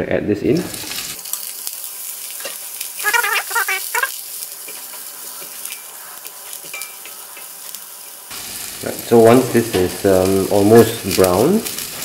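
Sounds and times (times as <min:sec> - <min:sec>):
tofu sizzling in hot oil: 0:00.5 - 0:12.0
warbling squeal: 0:03.0 - 0:04.1.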